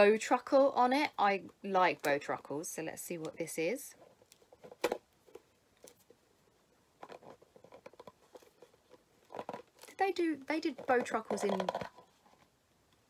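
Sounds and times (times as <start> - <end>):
packaging rustling and tapping: 7.0 - 12.5.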